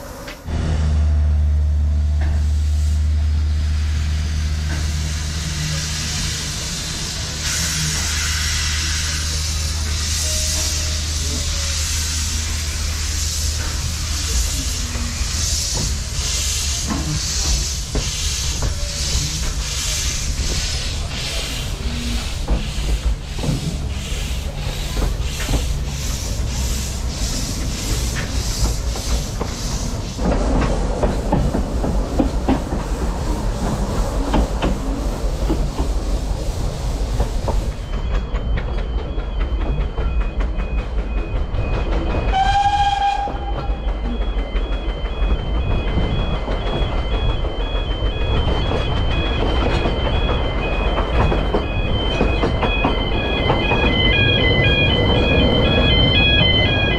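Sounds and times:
steam locomotive exhaust chuffs: 0.0 - 56.9
wheels clattering on rails: 13.5 - 56.9
level-crossing alarm beeping: 35.6 - 56.9
train whistle blast: 42.3 - 43.8.

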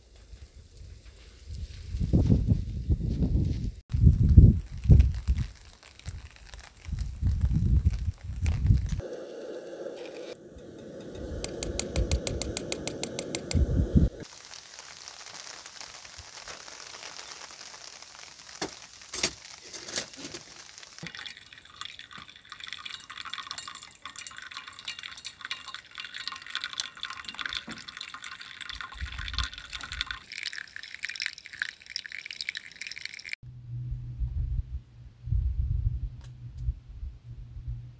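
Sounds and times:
water poured from kettle: 4.8 - 33.4
rapid even clicks: 10.9 - 13.7.

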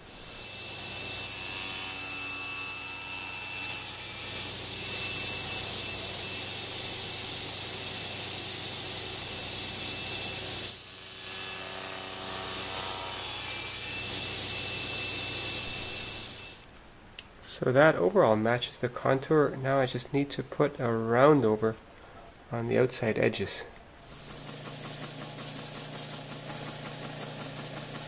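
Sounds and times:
table saw motor drone: 0.0 - 16.6, 24.0 - 28.0
saw cutting wood hiss: 0.0 - 16.7, 24.0 - 28.0.

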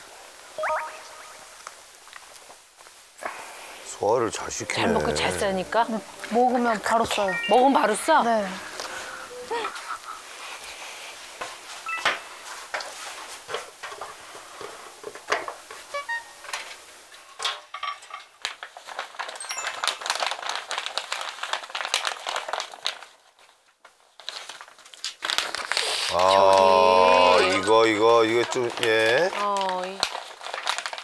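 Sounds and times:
short bright blips: 0.6 - 1.6.

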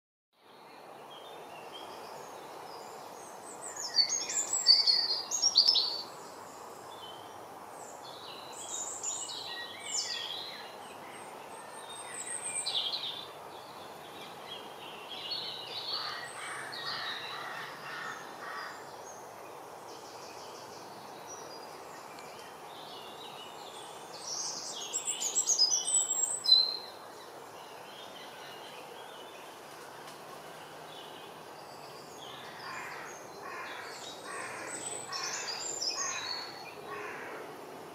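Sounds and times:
songbird singing: 0.4 - 37.9
steady background noise: 0.5 - 37.9.

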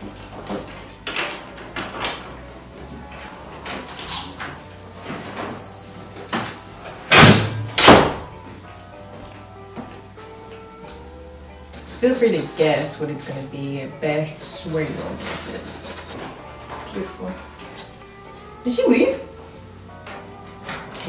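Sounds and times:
music with steady beat: 4.2 - 13.5.

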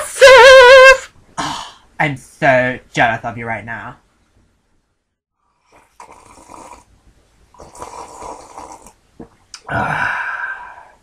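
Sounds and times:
person making breathy vocal noises: 1.4 - 1.9, 9.6 - 11.0.

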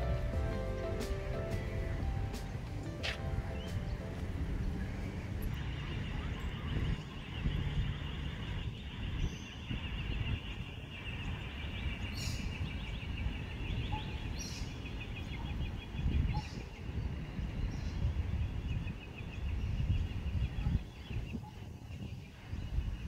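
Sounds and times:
low rumble: 0.0 - 8.8
chorus of calling animals: 3.1 - 12.4.

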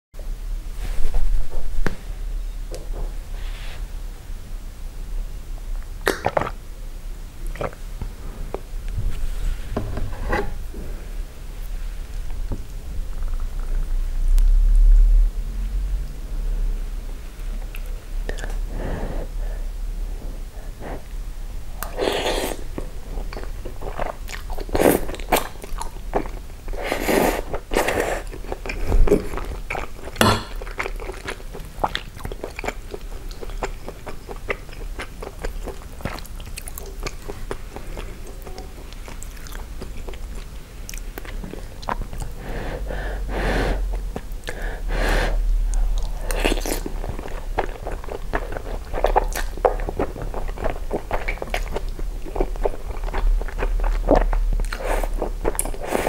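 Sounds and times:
close-miked eating and chewing: 7.4 - 8.7, 17.3 - 19.6, 20.2 - 56.0.

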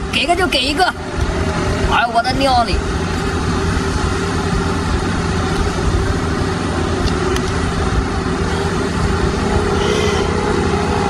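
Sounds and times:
engine humming: 0.0 - 11.0.

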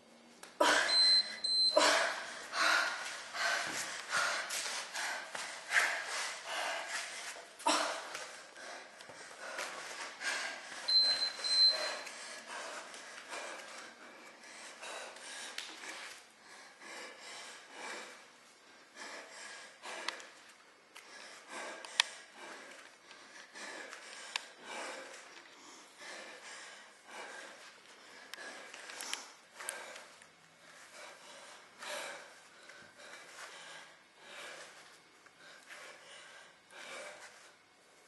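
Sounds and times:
woman breathing heavily: 0.5 - 38.0
high electronic beep: 0.9 - 1.8.

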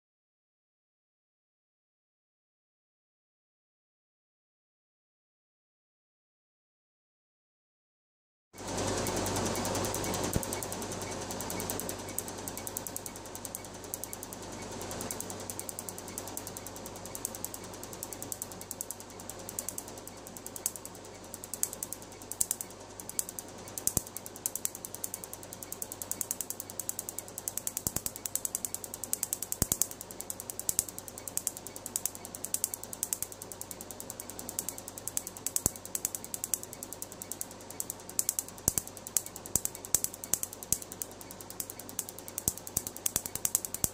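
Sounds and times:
laser snapping clicks: 9.0 - 43.9.

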